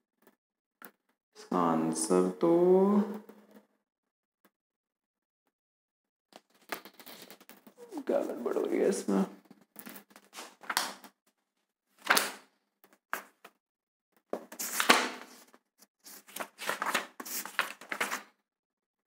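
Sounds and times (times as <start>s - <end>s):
book pages rustling: 6.8s - 8.8s, 10.2s - 11.0s, 14.4s - 18.3s.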